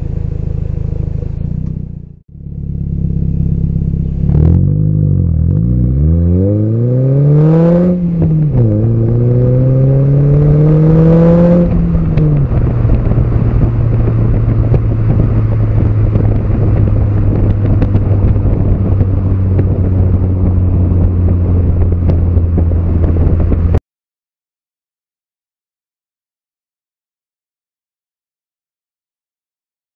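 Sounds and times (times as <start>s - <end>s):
car exhaust accelerating and cruising: 0.0s - 23.8s.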